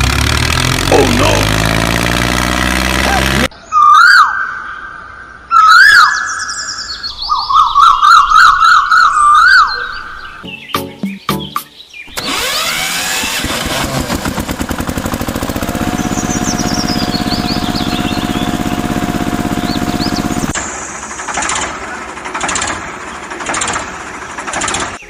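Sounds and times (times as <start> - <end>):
diesel tractor engine chugging: 0.0 - 3.5, 12.2 - 25.0
birds chirping: 0.0 - 12.4, 15.4 - 20.9.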